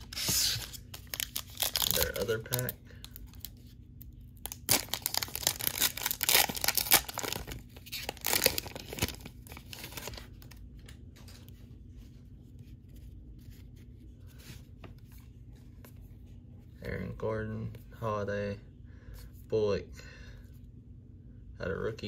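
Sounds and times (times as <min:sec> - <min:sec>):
foil pack tearing and crinkling: 0:00.0 - 0:03.5, 0:04.4 - 0:10.6.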